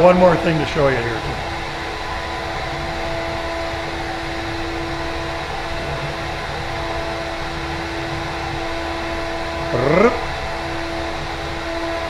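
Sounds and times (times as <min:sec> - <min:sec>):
constant rushing noise: 0:00.0 - 0:12.0
router spindle whine: 0:00.0 - 0:12.0.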